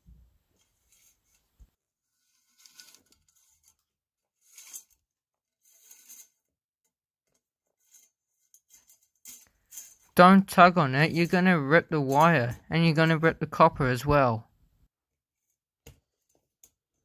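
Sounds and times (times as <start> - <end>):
wire scraping through pole: 2.1 - 6.6, 7.7 - 10.2.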